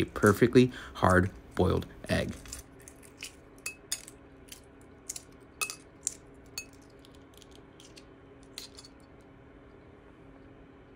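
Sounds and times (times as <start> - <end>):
egg shell crackling: 2.4 - 9.0
shell pieces clicking on plate: 2.4 - 9.0.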